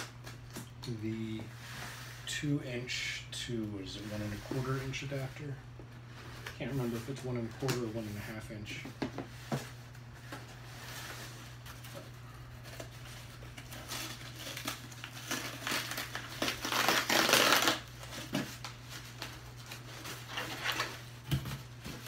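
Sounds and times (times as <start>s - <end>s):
tape and cardboard flaps tearing: 13.6s - 19.3s.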